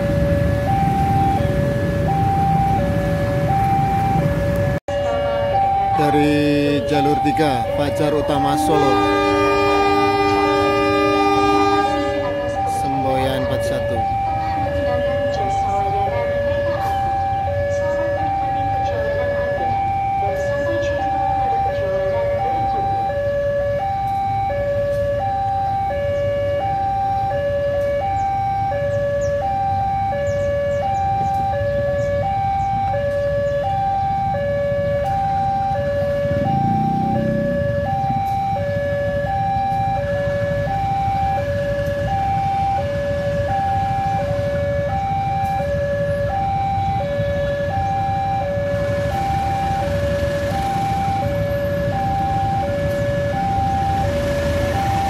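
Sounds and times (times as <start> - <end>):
diesel locomotive rumbling: 0.0 - 55.0
two-tone warning alarm: 0.0 - 55.0.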